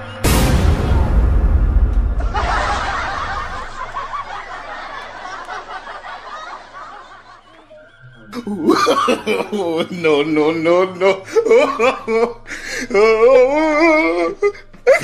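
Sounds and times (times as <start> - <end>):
loud low boom: 0.2 - 4.0
shrill cackling laughter: 2.2 - 9.9.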